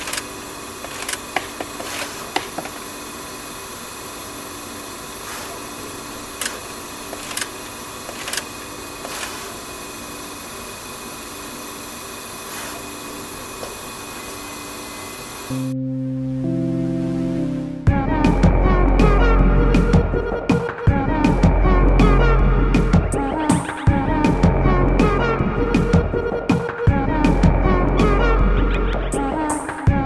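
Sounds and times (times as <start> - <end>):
sharp machine clicks: 0.0 - 2.7, 6.3 - 9.5
machine motors whirring: 0.0 - 15.7.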